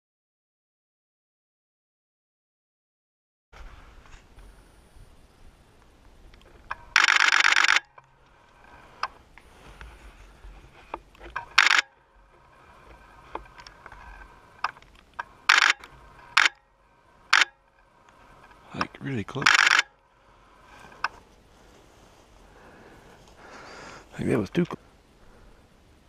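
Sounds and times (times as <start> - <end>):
camera shutter bursts: 6.9 - 8.0, 11.5 - 11.9, 15.4 - 16.6, 17.3 - 17.6, 19.4 - 19.9.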